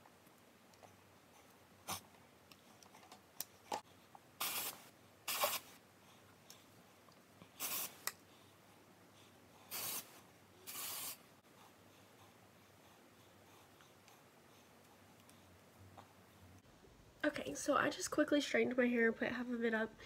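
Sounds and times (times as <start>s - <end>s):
aerosol spray hissing: 4.4s - 5.7s, 7.6s - 8.0s, 9.7s - 11.2s.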